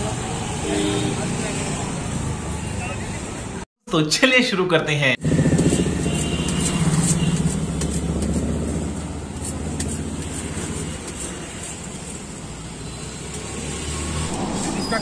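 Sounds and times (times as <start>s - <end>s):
blade scraping sugarcane stalks: 5.6s - 8.6s.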